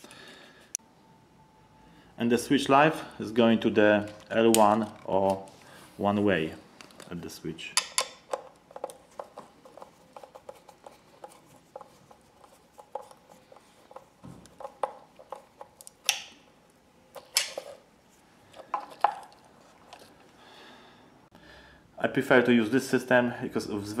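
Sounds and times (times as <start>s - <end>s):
screwdriver clicking and scraping: 7.8s - 16.2s.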